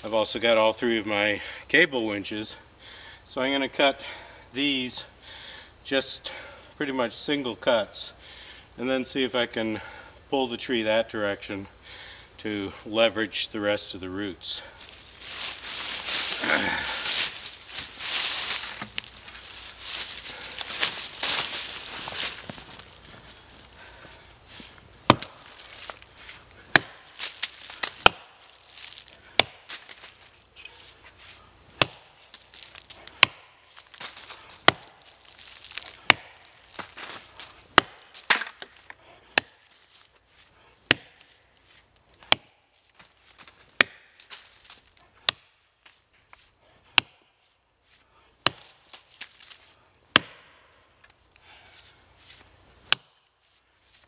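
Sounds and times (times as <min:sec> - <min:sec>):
axe chopping tree roots: 0:25.0 - 0:30.2, 0:31.8 - 0:39.8, 0:40.9 - 0:41.3, 0:42.2 - 0:42.6, 0:43.8 - 0:44.4, 0:45.2 - 0:45.6, 0:46.9 - 0:47.3, 0:48.4 - 0:49.0, 0:50.1 - 0:50.6, 0:52.8 - 0:53.2.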